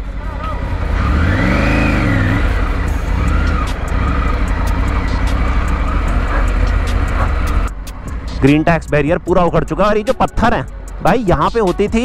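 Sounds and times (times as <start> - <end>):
motorcycle engine at low speed: 0.0 - 8.4.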